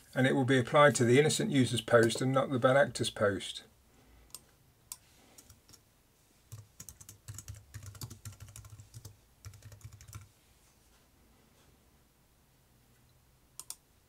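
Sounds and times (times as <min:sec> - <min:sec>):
computer keyboard typing: 0:05.4 - 0:05.8, 0:06.5 - 0:10.3, 0:13.6 - 0:13.8.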